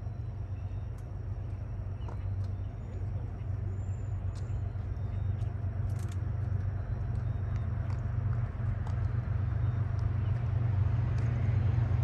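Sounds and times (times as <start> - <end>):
faint chirps and ticks: 0.0 - 11.8
distant diesel locomotive rumble: 0.0 - 12.0.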